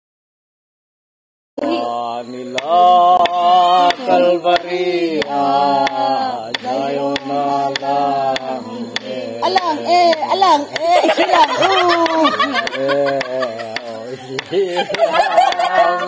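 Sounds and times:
person singing long held notes: 1.6 - 10.7.

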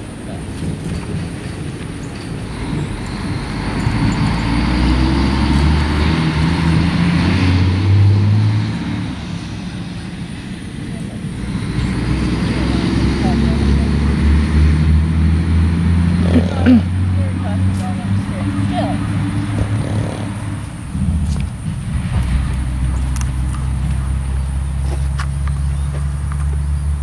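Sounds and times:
motor vehicle passing by: 0.0 - 27.0.

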